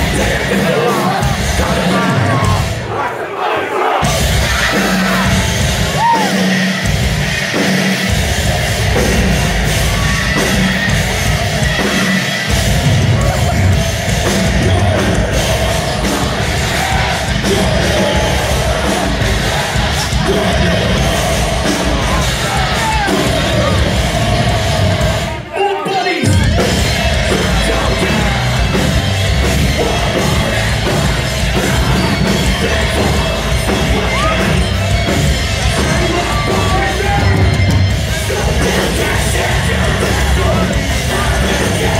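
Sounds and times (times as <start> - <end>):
distorted guitars: 0.0 - 3.1, 4.0 - 41.9
drums: 0.0 - 41.9
screamed vocals: 0.7 - 6.5.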